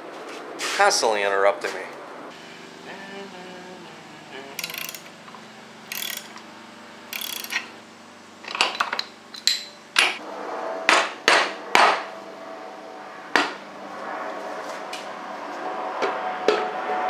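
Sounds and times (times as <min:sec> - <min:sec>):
tool scraping engine: 0:04.6 - 0:06.4, 0:07.1 - 0:07.7.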